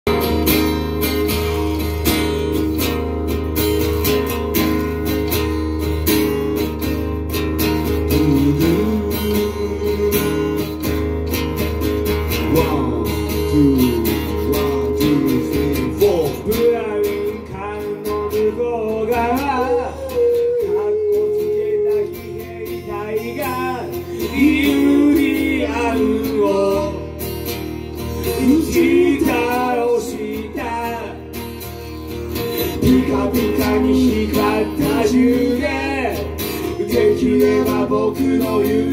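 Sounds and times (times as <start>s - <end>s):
acoustic guitar strumming chords: 0.1s - 38.9s
man singing: 8.0s - 10.9s, 12.3s - 27.2s, 28.2s - 31.4s, 32.6s - 38.9s.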